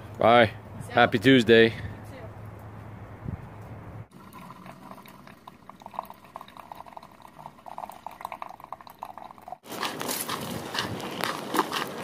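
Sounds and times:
coffee maker brewing and bubbling: 0:04.1 - 0:10.9.

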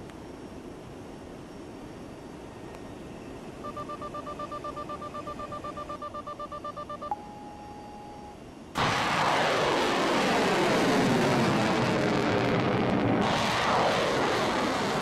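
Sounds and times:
thin electronic tone: 0:03.6 - 0:08.4.

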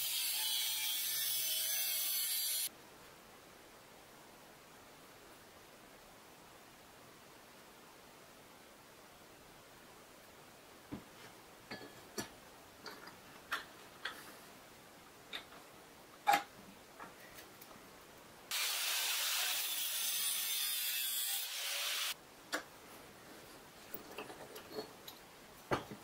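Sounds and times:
steady hiss: 0:02.6 - 0:24.0.

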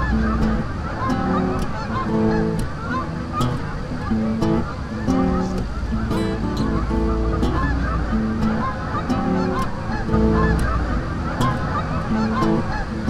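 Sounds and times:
geese honking: 0:00.0 - 0:13.0.

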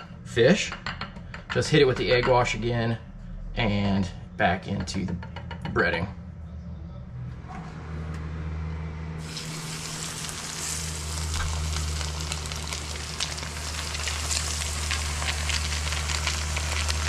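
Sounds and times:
fish sizzling in oil: 0:09.2 - 0:17.0
oil crackling pops: 0:09.2 - 0:17.0.

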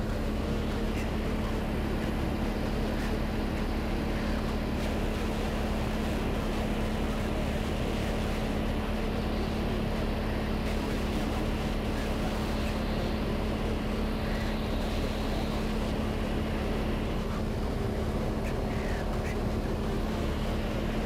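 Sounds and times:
aircraft engine droning in cabin: 0:00.0 - 0:21.0.

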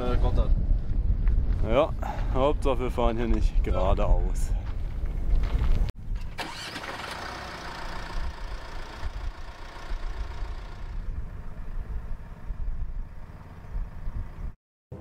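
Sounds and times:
vehicle engine idling: 0:06.4 - 0:14.6.

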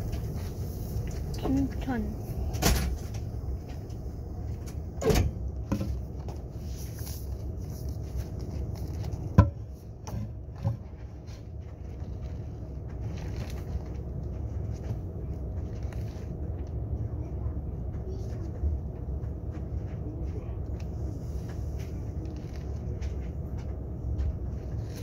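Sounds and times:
train carriage hum and rumble: 0:00.0 - 0:25.0
sharp knocks and thuds: 0:09.3 - 0:11.1.

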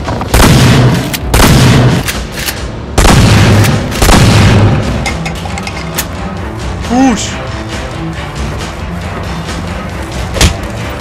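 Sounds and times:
shotgun blasts: 0:00.3 - 0:02.0, 0:03.0 - 0:04.9.

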